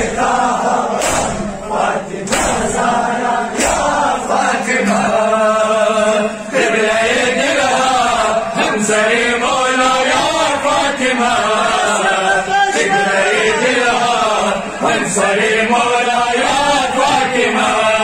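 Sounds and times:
man chanting a lament: 8.2 - 18.0.

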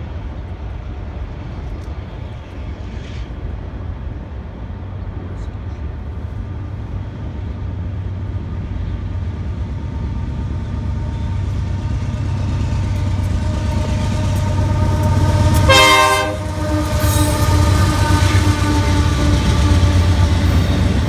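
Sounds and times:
locomotive low rumble: 0.0 - 21.0
train horn blast: 14.1 - 20.3.

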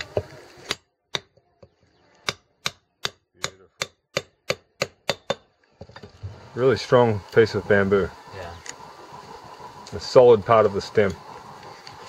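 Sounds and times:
hatchet chopping bamboo: 0.0 - 1.4, 2.2 - 5.5.

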